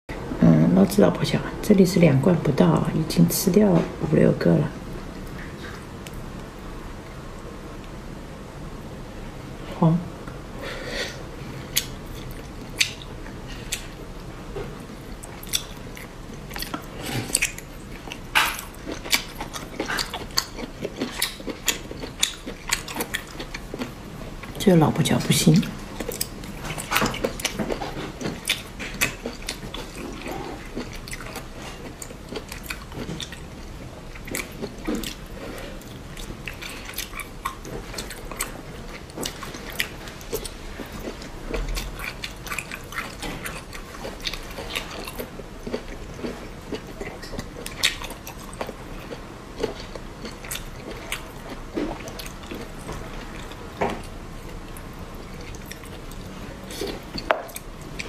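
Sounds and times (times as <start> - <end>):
wet chewing and sucking: 15.0 - 24.6.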